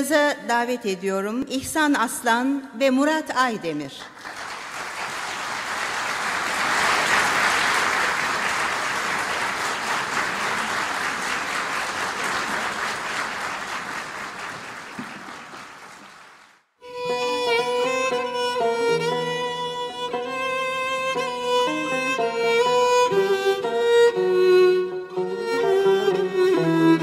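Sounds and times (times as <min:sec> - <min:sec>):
audience applause: 0:04.2 - 0:16.6
violin playing: 0:16.8 - 0:27.0.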